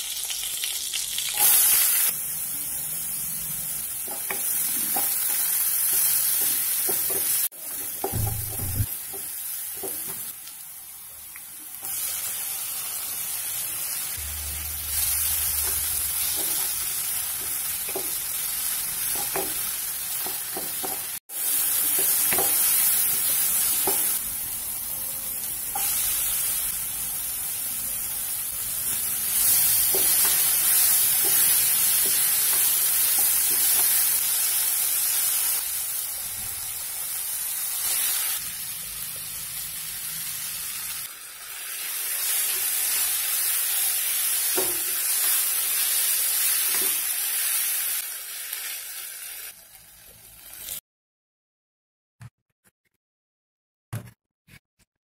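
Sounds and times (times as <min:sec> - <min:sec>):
food sizzling in oil in a wok: 0:00.0 - 0:50.8.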